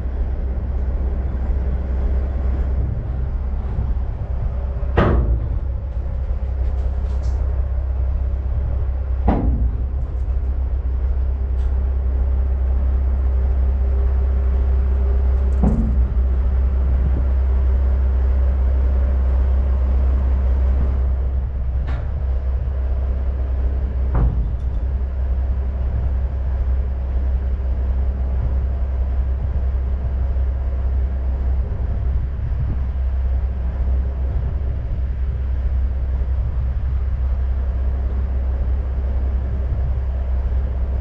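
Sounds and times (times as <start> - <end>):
heavy truck rumbling: 0.0 - 41.0
sharp knocks: 4.9 - 5.7, 9.2 - 10.0.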